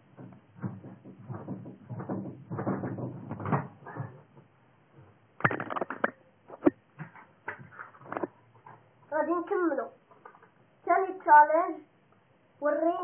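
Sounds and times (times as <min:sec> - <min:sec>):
bed thudding and creaking: 0:00.0 - 0:08.4.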